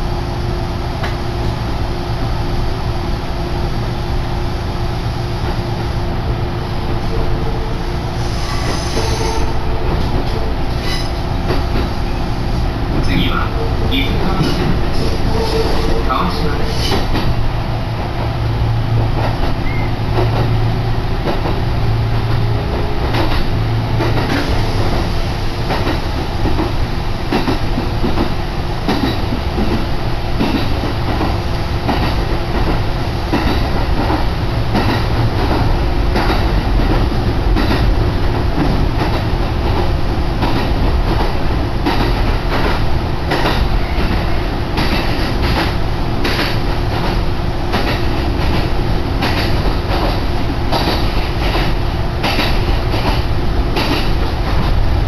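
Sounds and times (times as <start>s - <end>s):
train rumble inside carriage: 0.0s - 55.0s
wheels clacking over rail joints: 12.8s - 17.4s, 21.2s - 55.0s.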